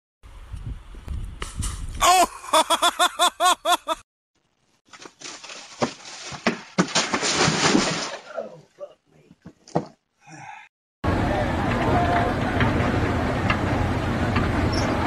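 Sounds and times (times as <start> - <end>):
short pitched cries: 2.0 - 2.3
scuffle with sharp knocks: 4.9 - 8.1.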